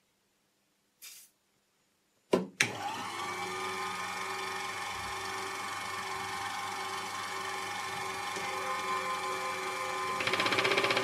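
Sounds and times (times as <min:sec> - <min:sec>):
electric motor running: 0:02.7 - 0:11.0.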